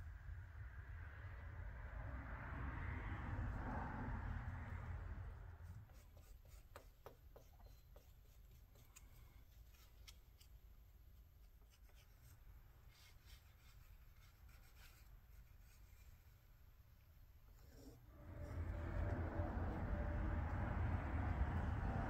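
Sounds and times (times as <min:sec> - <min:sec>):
glue brush scratching on leather: 0:05.6 - 0:10.5, 0:11.4 - 0:16.4.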